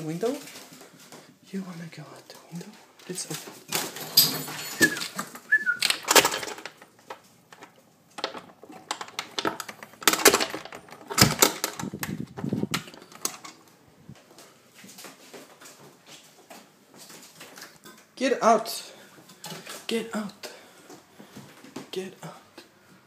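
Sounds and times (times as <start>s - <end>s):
sharp knocks taps and rattles: 3.9s - 13.6s.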